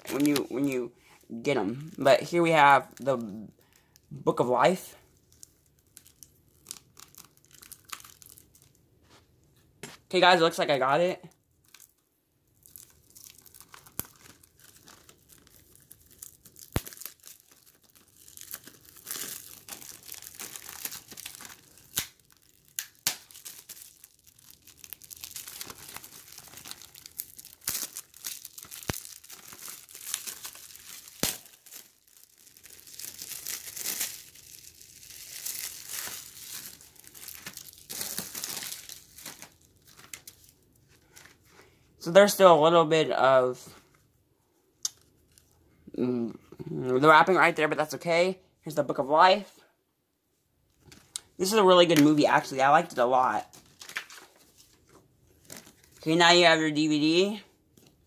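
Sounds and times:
plastic wrap rustling: 0:00.0 - 0:04.0, 0:05.0 - 0:09.6, 0:11.4 - 0:41.6, 0:52.0 - 0:56.1.

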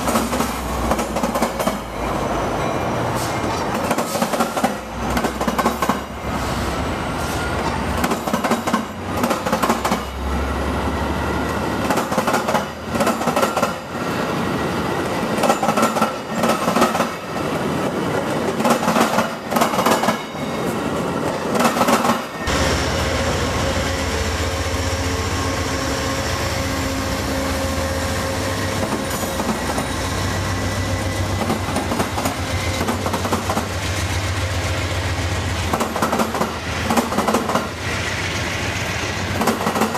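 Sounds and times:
train wheels clicking over rail joints: 0:00.0 - 0:01.9, 0:03.4 - 0:06.2, 0:07.6 - 0:10.2, 0:11.5 - 0:14.0, 0:15.0 - 0:22.7, 0:31.3 - 0:34.7, 0:35.5 - 0:39.9
train departing low rumble: 0:00.0 - 0:39.9.

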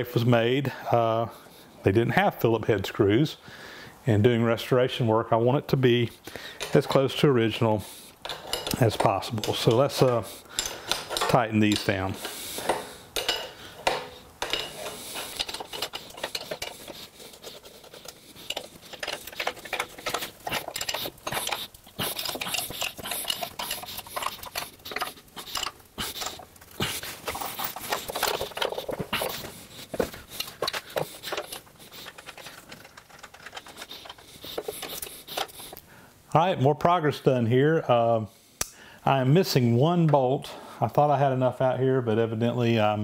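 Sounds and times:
wrench clinking on metal bolts: 0:08.2 - 0:29.5.

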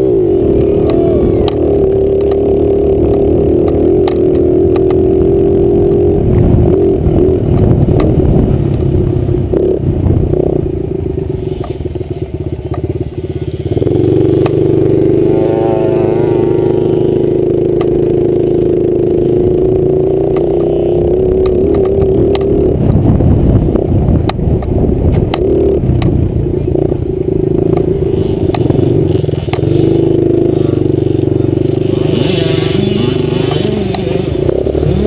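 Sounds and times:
dirt bike engine revving: 0:00.0 - 0:24.2, 0:24.8 - 0:35.0.

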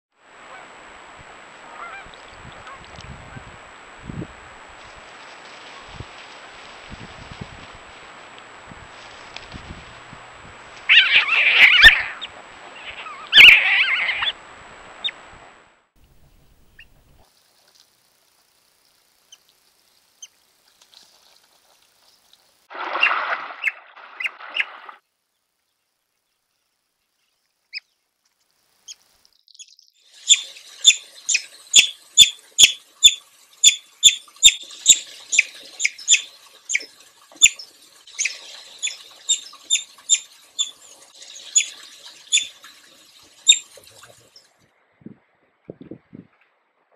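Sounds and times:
otters rough calls: 0:10.8 - 0:15.2
otters high chirps: 0:10.9 - 0:14.4.

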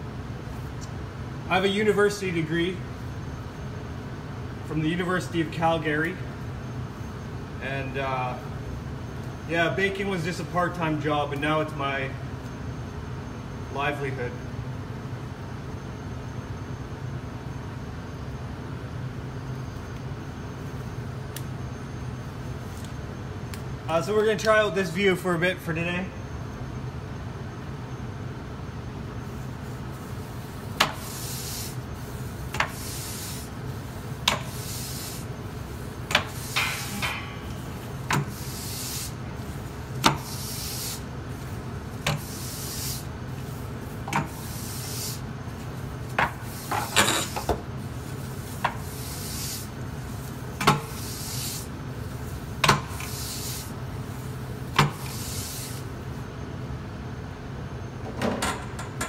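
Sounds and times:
steady low hum: 0:00.0 - 0:59.0
oven brush scraping oven floor: 0:30.0 - 0:37.1, 0:37.9 - 0:41.1, 0:42.0 - 0:53.8.

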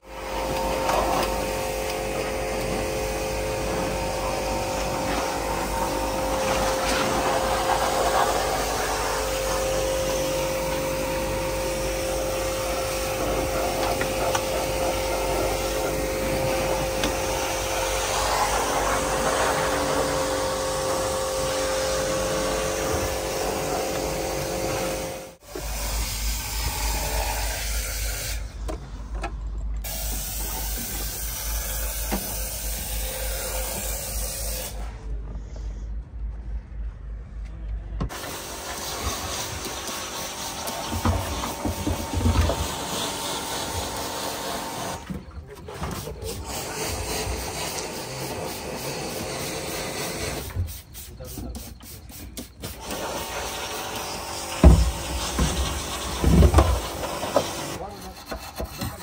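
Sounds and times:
cleaning machine whining: 0:00.0 - 0:28.8, 0:29.8 - 0:35.1, 0:38.1 - 0:59.0
rushing air: 0:03.0 - 0:13.8.

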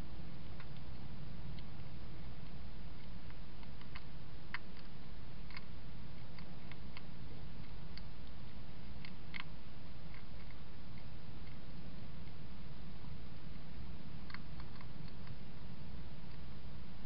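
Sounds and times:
low hum: 0:00.0 - 0:17.0
hedgehog chewing clicks: 0:03.0 - 0:11.6, 0:14.2 - 0:15.4.

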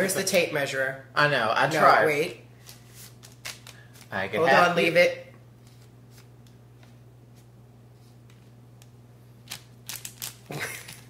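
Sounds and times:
paper bags crackling: 0:09.6 - 0:11.0.

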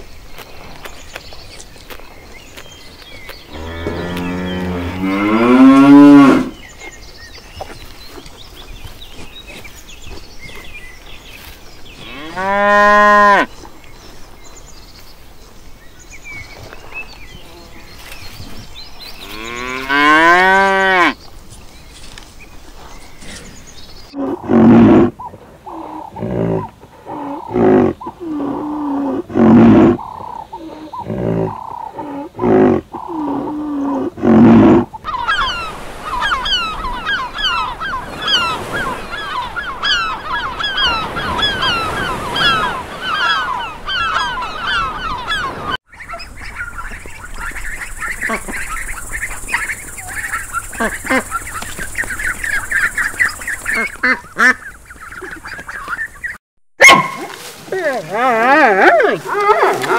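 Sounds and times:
gulls calling: 0:29.6 - 0:59.9.

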